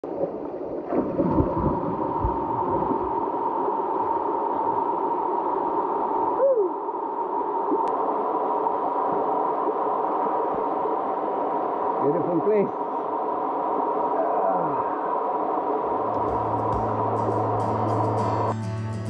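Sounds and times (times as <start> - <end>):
water gurgle: 0.0 - 18.2.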